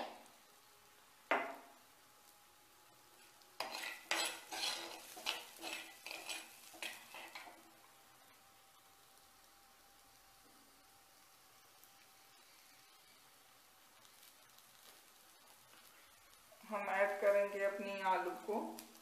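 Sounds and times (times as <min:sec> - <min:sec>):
spoon scraping and clinking pan: 0:03.6 - 0:07.6.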